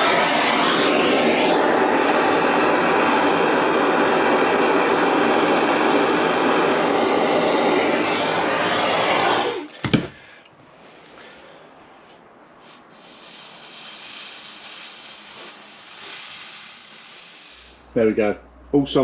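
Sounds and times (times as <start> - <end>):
blowtorch flame hissing: 0.0 - 10.1, 12.5 - 17.9.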